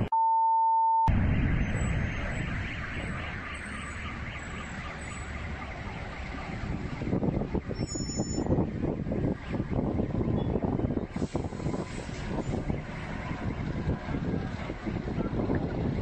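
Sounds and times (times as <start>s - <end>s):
steady beep tone: 0.0s - 3.0s
explosion rumble: 1.1s - 3.5s.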